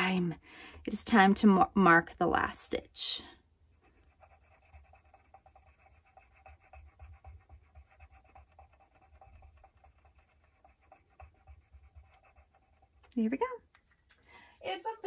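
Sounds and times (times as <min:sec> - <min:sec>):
marker scratching on plastic: 0:03.8 - 0:13.4.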